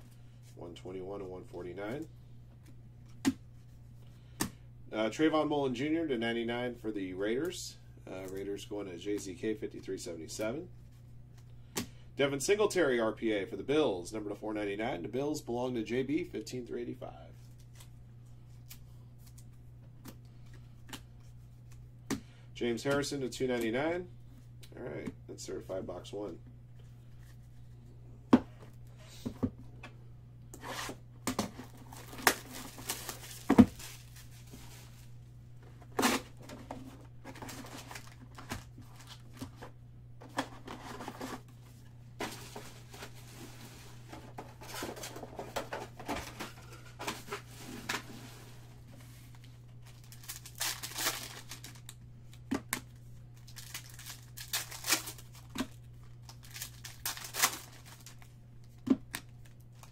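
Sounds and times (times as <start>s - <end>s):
foil wrappers tearing and crinkling: 31.6s - 35.0s, 37.3s - 39.3s, 49.8s - 52.0s, 53.4s - 58.3s.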